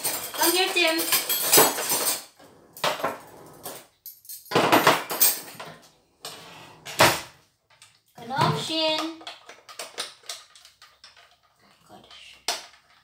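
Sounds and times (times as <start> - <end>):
metal beaters clinking against a bowl: 0.0 - 2.3.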